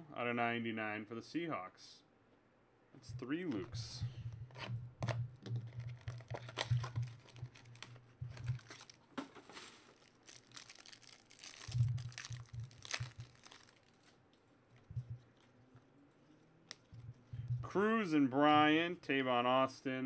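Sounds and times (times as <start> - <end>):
plastic wrapper tearing and crinkling: 5.6 - 14.2.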